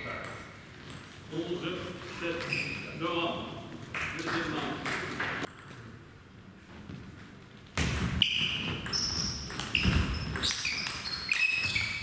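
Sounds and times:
shoes squeaking on floor: 2.1 - 3.0, 8.2 - 12.0.

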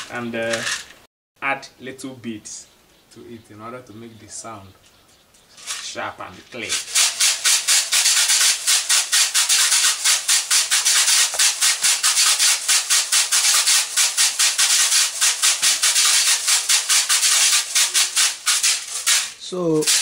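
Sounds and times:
seed shakers rattling: 5.5 - 20.0.

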